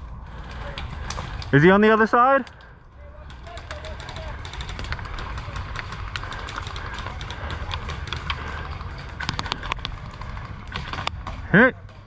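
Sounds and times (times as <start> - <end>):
sharp clicks: 2.4 - 11.3
gear rattling: 3.0 - 12.0.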